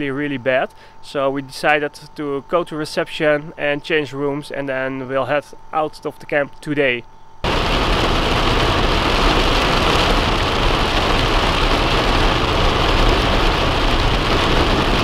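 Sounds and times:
car engine and road noise: 7.5s - 15.0s
heavy rain on car roof: 7.5s - 15.0s.

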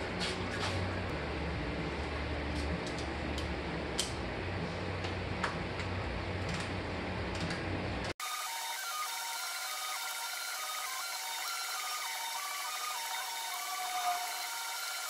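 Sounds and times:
low background hum: 0.0s - 8.1s.

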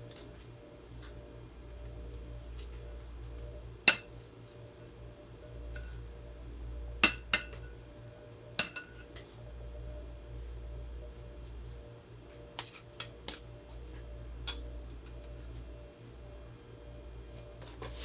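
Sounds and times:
metal spoons clinking in glass bowl: 8.6s - 9.3s.

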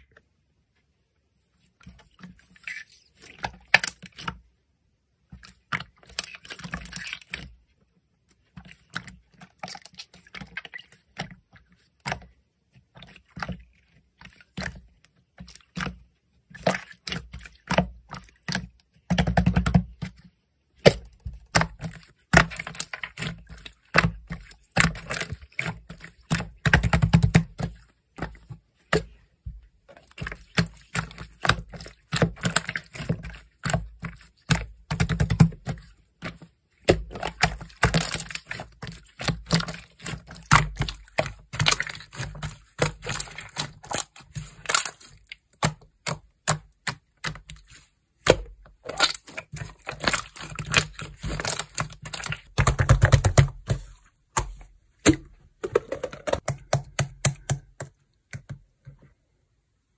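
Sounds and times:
slime crackling and popping: 36.9s - 47.0s, 48.2s - 53.4s.

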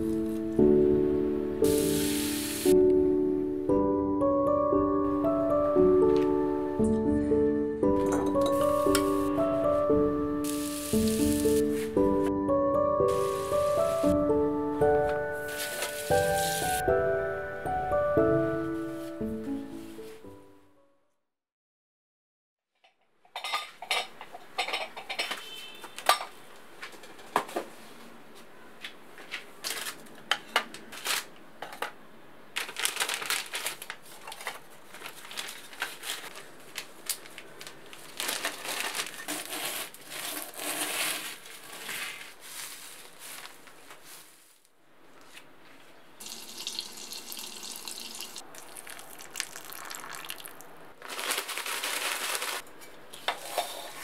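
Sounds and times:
plastic bag rustling and crunching: 10.4s - 12.0s, 13.1s - 14.2s, 15.2s - 16.8s, 32.6s - 44.6s, 48.6s - 52.8s.

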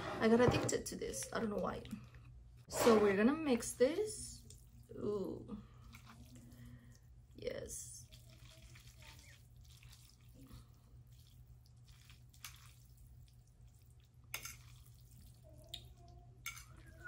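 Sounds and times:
low steady hum: 0.0s - 17.0s
fork mixing wet noodles: 4.3s - 4.9s, 5.7s - 7.1s, 7.8s - 17.0s.

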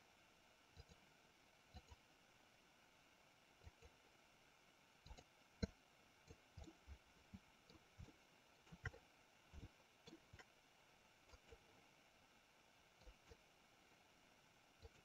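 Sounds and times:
computer mouse clicks: 0.8s - 1.1s, 1.7s - 2.0s, 3.6s - 4.0s, 5.0s - 10.6s, 11.2s - 11.8s, 13.0s - 13.5s, 14.8s - 15.0s.

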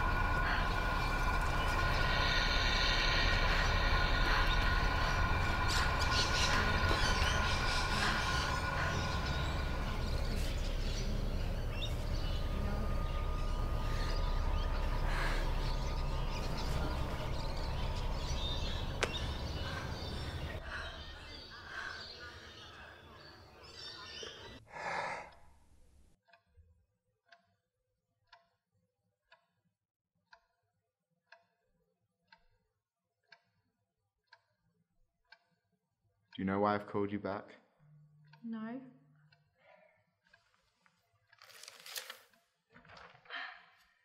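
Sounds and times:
low rumble: 0.0s - 21.9s
clock ticking: 34.3s - 34.6s, 36.3s - 37.4s, 40.2s - 41.7s.

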